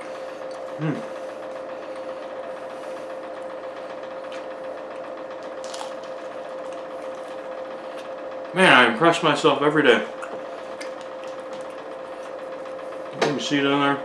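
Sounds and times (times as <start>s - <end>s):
steady machine hum: 0.0s - 14.0s
chewing crunches: 4.1s - 8.2s, 10.2s - 12.5s.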